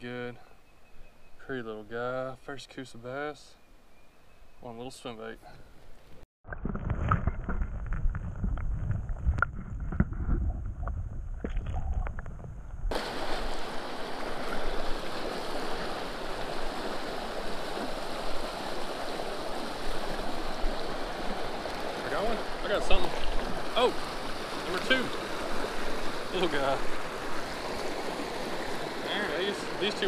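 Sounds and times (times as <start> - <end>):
creek water rushing over rocks: 12.9 - 30.0.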